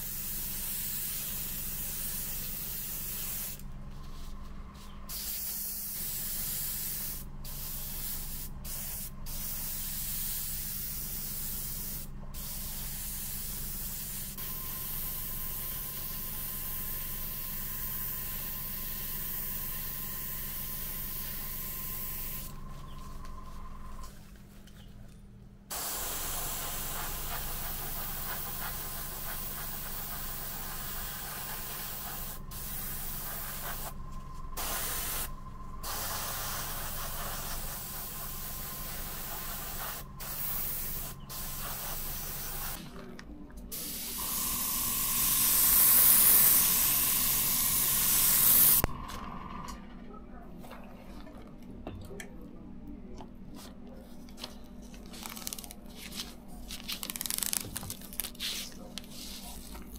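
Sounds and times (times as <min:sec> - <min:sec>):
airbrush spraying hiss: 0:00.0 - 0:22.6, 0:25.7 - 0:34.0, 0:34.6 - 0:42.8, 0:43.7 - 0:48.9.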